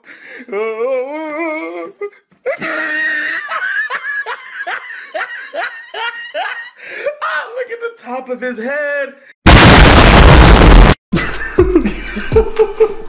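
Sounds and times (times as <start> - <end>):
person laughing: 2.5 - 6.8, 11.2 - 13.0.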